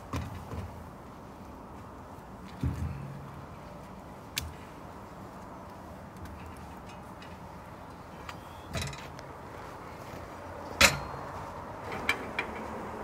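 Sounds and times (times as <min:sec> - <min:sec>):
loud metal clank: 0:10.8 - 0:11.3
metal door clatter: 0:10.8 - 0:12.6.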